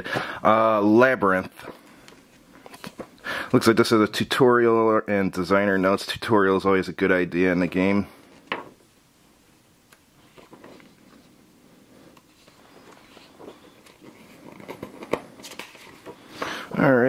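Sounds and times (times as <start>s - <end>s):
paper pages rustling: 1.6s - 3.2s, 10.2s - 11.4s, 12.0s - 17.0s.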